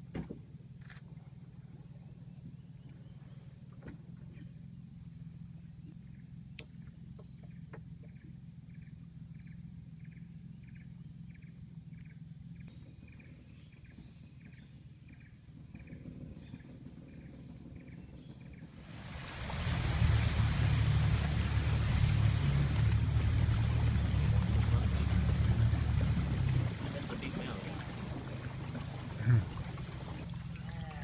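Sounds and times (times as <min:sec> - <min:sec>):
boat motor running: 0:00.0 - 0:31.0
rushing water: 0:18.8 - 0:31.0.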